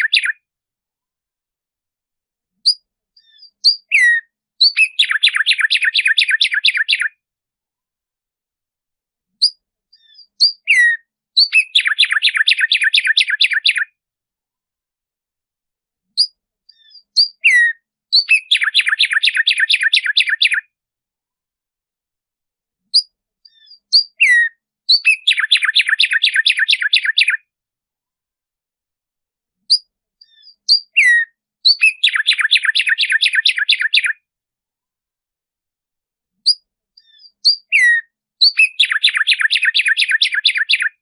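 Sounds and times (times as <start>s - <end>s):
sparrow singing: 0.0s - 0.5s, 2.5s - 7.2s, 9.3s - 14.0s, 16.0s - 20.7s, 22.9s - 27.5s, 29.6s - 34.2s, 36.4s - 41.0s.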